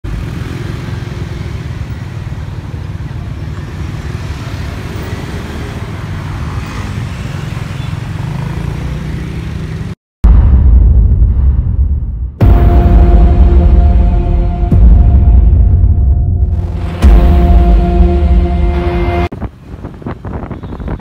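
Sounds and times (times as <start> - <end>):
road noise: 0.0 - 10.0, 12.4 - 21.0
vehicle engines rumbling: 0.0 - 10.0, 14.0 - 21.0
loud low boom: 10.2 - 19.3
intro music: 12.4 - 19.3.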